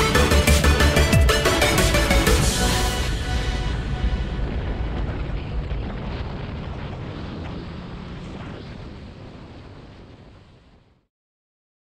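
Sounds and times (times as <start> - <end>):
wind rushing over microphone: 1.7 - 11.0.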